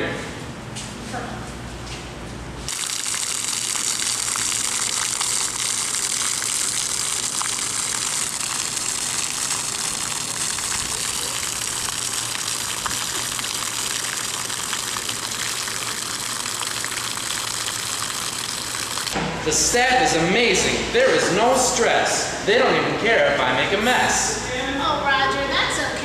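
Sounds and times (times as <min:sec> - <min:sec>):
fountain water splashing on concrete: 0:02.7 - 0:19.2.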